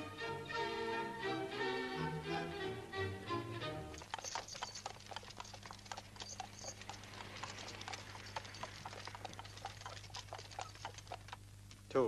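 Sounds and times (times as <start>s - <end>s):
steady low hum: 2.8s - 12.0s
horse hooves clopping: 3.9s - 11.9s.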